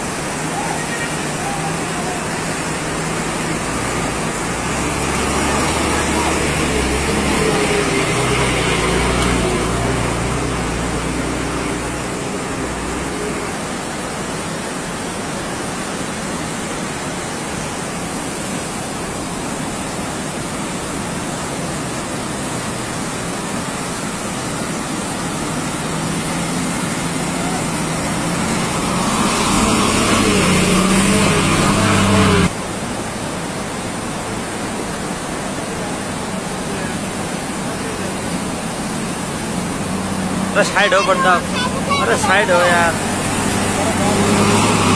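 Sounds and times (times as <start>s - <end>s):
floodwater rushing across road: 0.0s - 44.9s
bus engine running: 21.0s - 34.2s, 35.6s - 44.9s.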